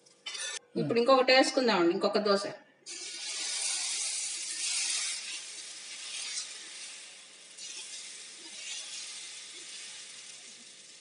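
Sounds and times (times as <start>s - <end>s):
batter sizzling on hot pan: 2.9s - 11.0s.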